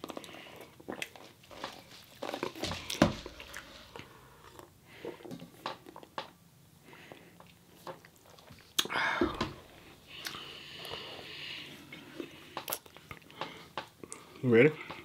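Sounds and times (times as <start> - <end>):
breathy hiss: 8.8 - 12.7.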